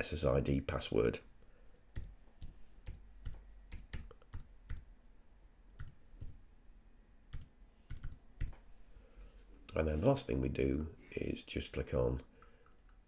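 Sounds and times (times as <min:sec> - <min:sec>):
typing on keyboard: 0:01.9 - 0:04.9, 0:05.8 - 0:06.4, 0:07.3 - 0:08.6.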